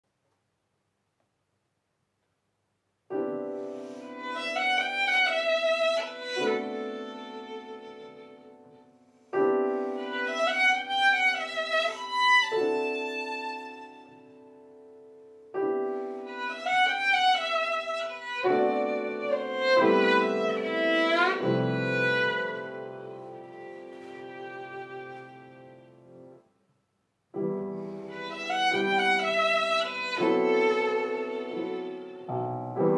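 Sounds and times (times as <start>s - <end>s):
piano chords: 3.1s - 26.4s, 27.3s - 32.9s
violin melody with vibrato: 4.0s - 8.8s, 9.7s - 14.3s, 16.3s - 26.2s, 28.0s - 32.4s.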